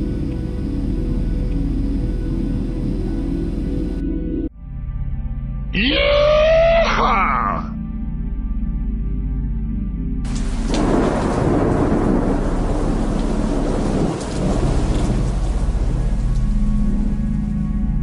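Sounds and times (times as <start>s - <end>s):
heavy rain: 0.0s - 4.0s, 10.2s - 18.0s
thunder rumbling: 0.0s - 4.0s, 10.2s - 18.0s.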